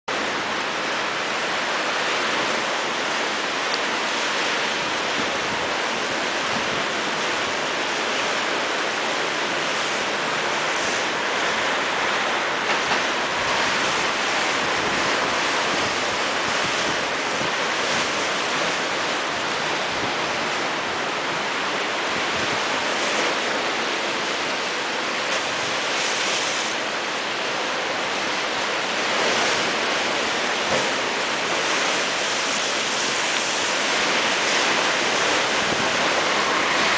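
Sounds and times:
rough sea surf against seawall: 0.1 - 36.9.

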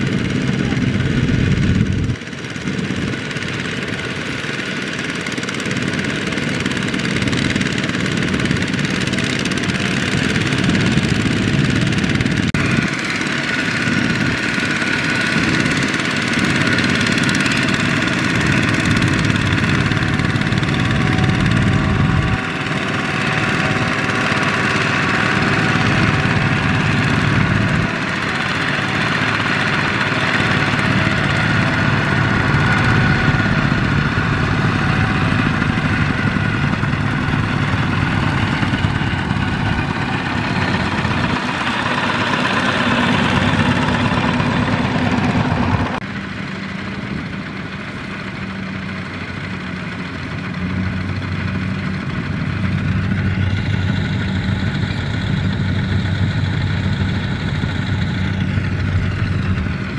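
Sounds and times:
single-cylinder diesel engine running: 0.0 - 59.9.

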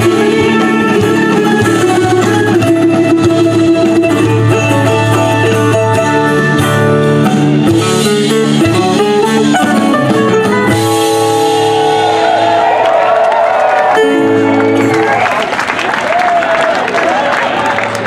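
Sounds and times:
plucked strings: 0.0 - 12.6, 13.9 - 15.4
drums: 0.0 - 15.1.

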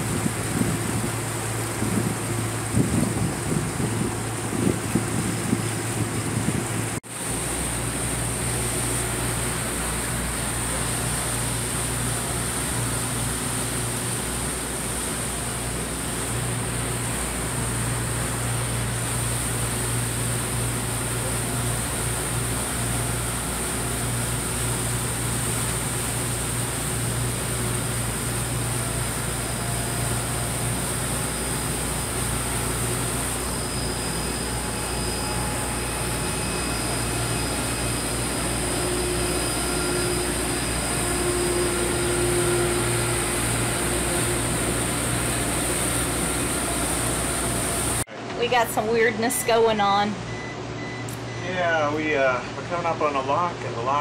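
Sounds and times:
boat engines droning: 0.0 - 54.0.

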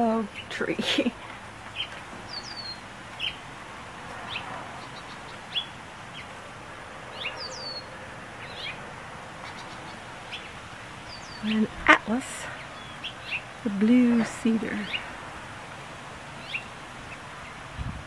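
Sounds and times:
faint background hiss: 0.0 - 18.0
small birds chirping: 0.0 - 18.0.

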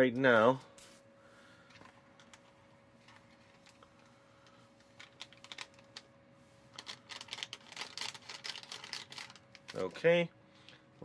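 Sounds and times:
packet crinkling: 3.0 - 6.1, 6.7 - 10.0
powder shaken out: 6.7 - 10.0.

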